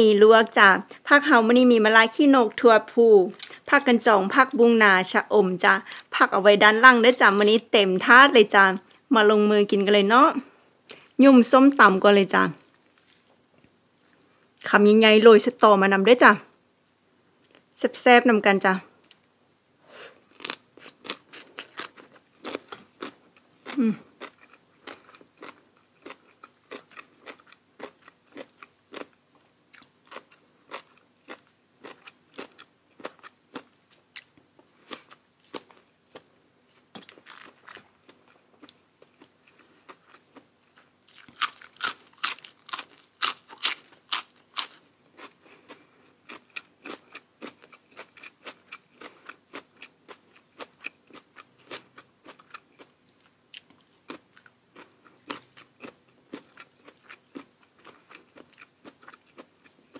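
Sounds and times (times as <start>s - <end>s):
chewing crisp food: 12.7s - 13.4s, 20.2s - 59.9s
loud crunching bites: 41.1s - 45.3s.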